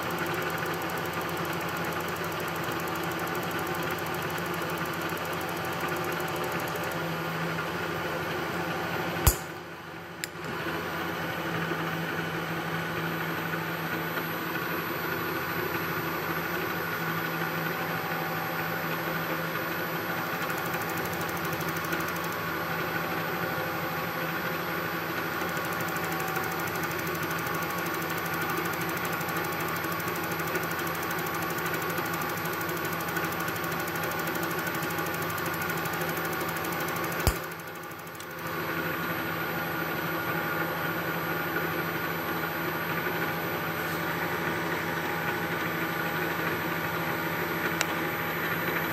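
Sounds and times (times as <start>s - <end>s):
sharp click: 9.2s - 10.4s, 37.2s - 38.3s.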